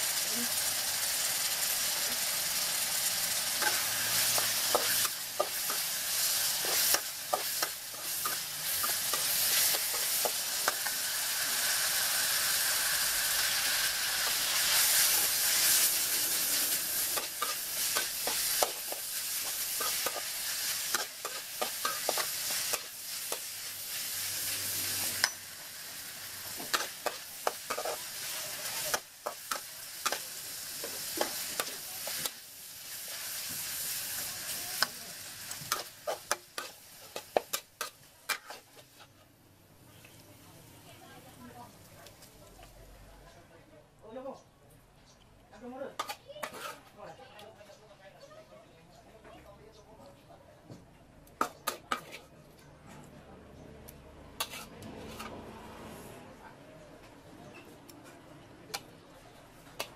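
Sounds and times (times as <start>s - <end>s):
food sizzling in a wok: 0.0s - 42.8s, 46.0s - 47.0s, 54.4s - 56.2s, 59.4s - 59.9s
spatula scraping a wok: 1.2s - 39.4s, 46.0s - 46.9s, 51.4s - 52.4s, 54.4s - 56.3s.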